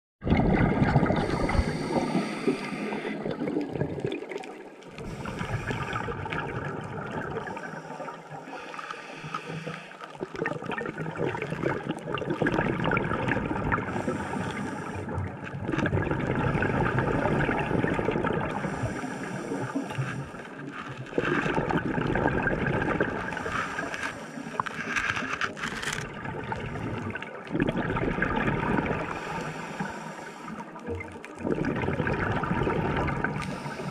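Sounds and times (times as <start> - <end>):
bubbling exhaust: 0.2 - 8.6, 9.2 - 24.7, 26.1 - 33.9
diver breathing through regulator: 1.1 - 3.7, 5.0 - 6.4, 7.4 - 10.3, 13.9 - 15.3, 16.5 - 26.0, 28.8 - 30.9, 33.2 - 33.9
water hiss: 1.2 - 3.4, 7.4 - 10.1, 13.9 - 15.2, 18.6 - 20.6, 23.2 - 25.3, 29.1 - 30.9, 33.3 - 33.9.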